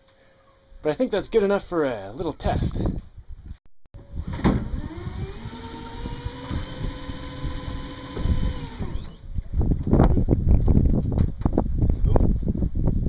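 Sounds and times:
electric motor whine: 4.1s - 9.3s
electric motor clunk: 4.2s - 9.2s.

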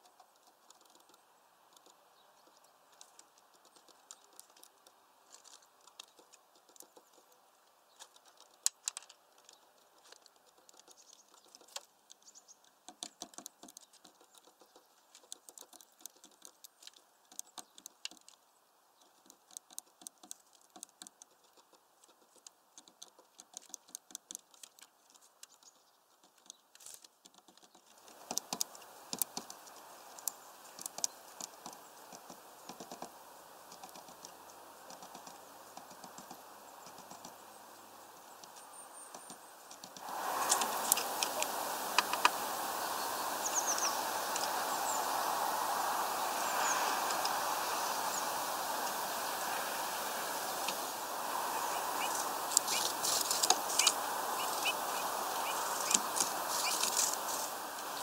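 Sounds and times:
background hiss: 0.0s - 58.0s
bird bill tapping on feeder: 38.4s - 57.3s.

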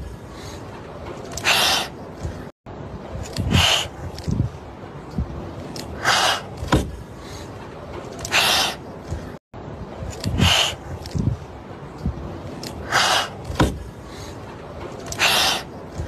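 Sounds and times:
kittens hissing: 3.4s - 4.0s, 6.0s - 6.5s, 15.1s - 15.7s.

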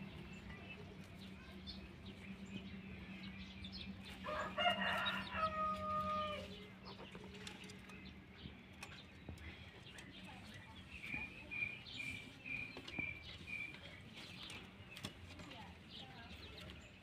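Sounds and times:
steady low hum: 0.0s - 16.9s
rooster crowing: 4.2s - 6.5s.

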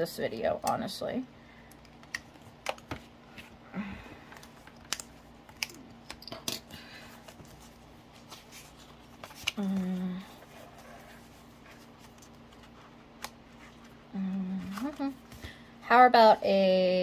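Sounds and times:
paper cards shuffling: 7.2s - 14.0s
person humming: 9.6s - 10.4s, 14.1s - 15.2s.

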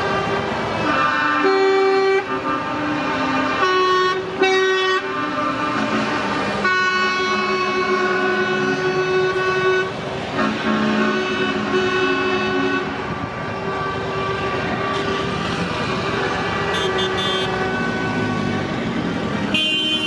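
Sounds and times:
truck horn blasts: 0.0s - 18.6s, 19.5s - 20.0s
truck engines running: 0.0s - 20.0s.

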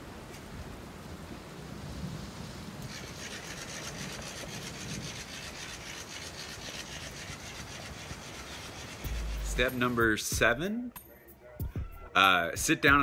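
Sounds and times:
motorized decoration rasping clatter: 2.9s - 9.9s.

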